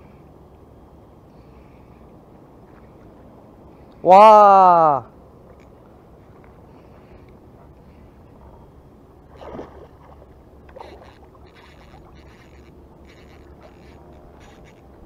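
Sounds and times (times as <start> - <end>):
water splashing: 9.3 - 15.0
fishing reel gear whirring: 10.3 - 15.0.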